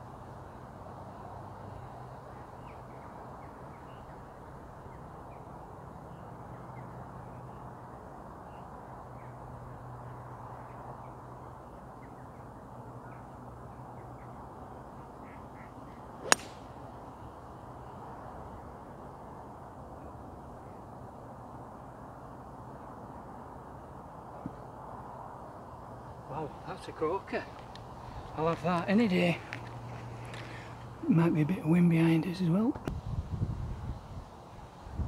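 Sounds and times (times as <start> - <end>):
golf club striking ball: 16.2 - 16.8.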